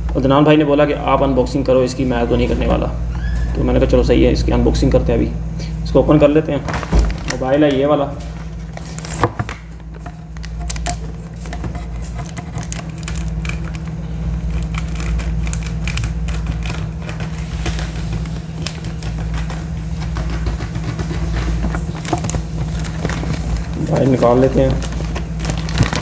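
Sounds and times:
low machine hum: 0.0 - 26.0
plastic bag crinkling: 8.3 - 20.0, 21.4 - 26.0.

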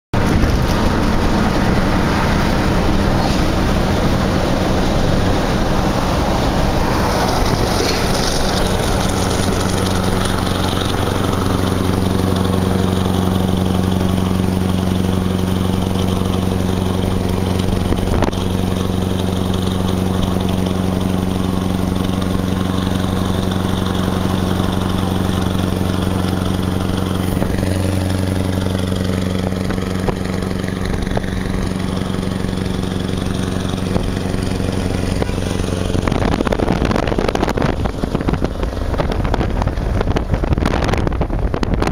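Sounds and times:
truck engine droning: 0.1 - 41.9
wind and tyre noise: 0.1 - 41.9.

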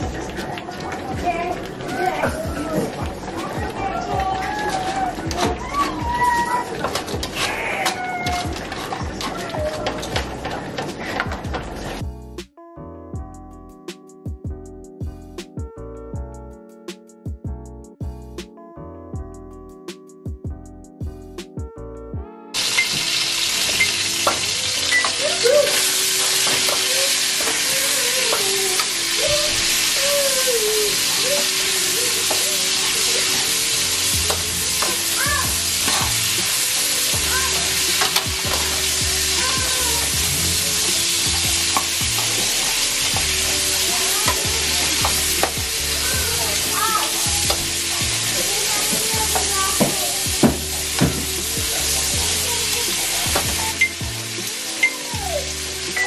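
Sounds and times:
vegetables sizzling in oil: 22.6 - 56.0.

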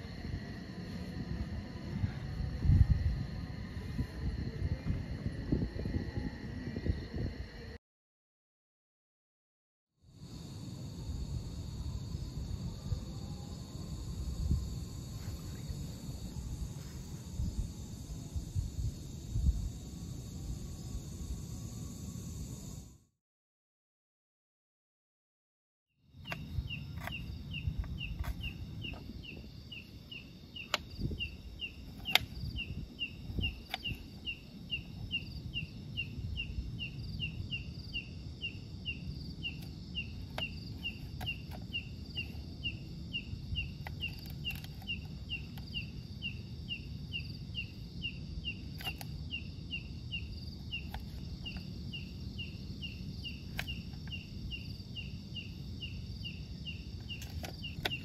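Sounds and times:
insects chirping: 0.0 - 7.8, 10.0 - 23.2, 26.0 - 58.0
high-pitched insect buzz: 10.1 - 23.1, 26.1 - 58.0.

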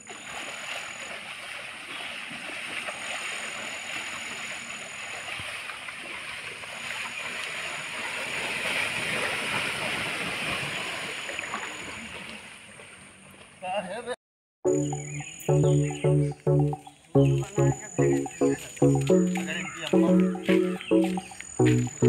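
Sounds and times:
water splashing and sloshing: 0.0 - 13.1.

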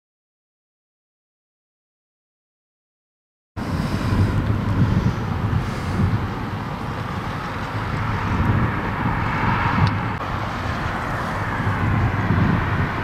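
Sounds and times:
car tyre noise: 3.6 - 13.0
road traffic: 3.6 - 13.0
wind buffeting microphone: 3.6 - 13.0.

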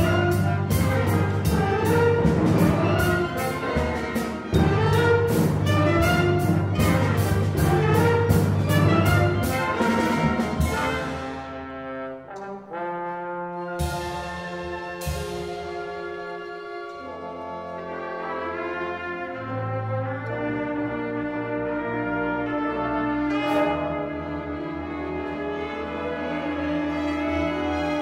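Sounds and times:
steady drum beat: 0.0 - 11.6, 13.8 - 16.2
orchestra playing brass-led passage: 0.0 - 28.0.

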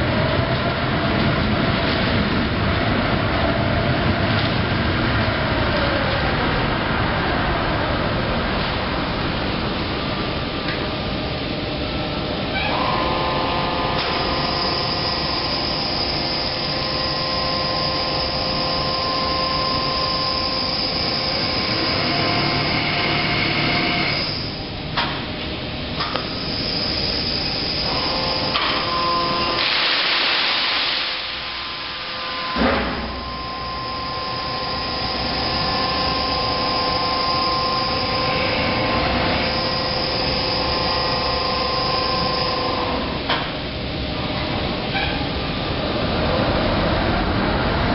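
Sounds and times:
crane machine whine: 0.0 - 47.9
rushing hiss: 29.3 - 32.4.

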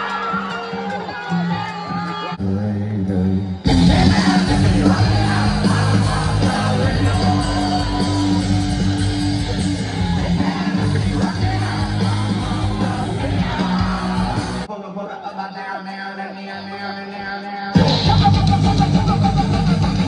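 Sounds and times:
live band playing: 3.5 - 14.7, 17.8 - 20.0.

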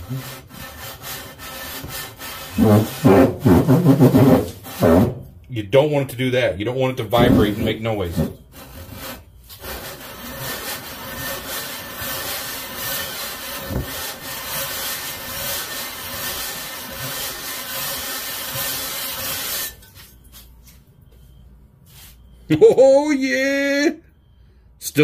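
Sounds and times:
metal scraping on sandpaper: 0.0 - 5.1, 7.3 - 20.8.

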